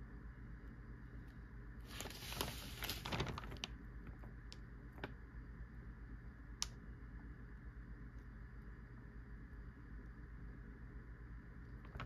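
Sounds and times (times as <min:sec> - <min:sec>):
newspaper pages rustling: 0:01.8 - 0:04.3.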